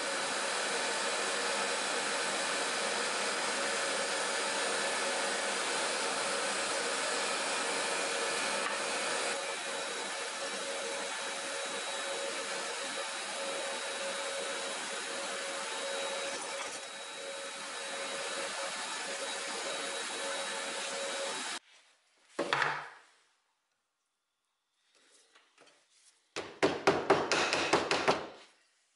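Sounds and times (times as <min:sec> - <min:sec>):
mortiser motor cutting wood: 0:00.0 - 0:21.6
workshop vacuum suction: 0:00.0 - 0:21.6.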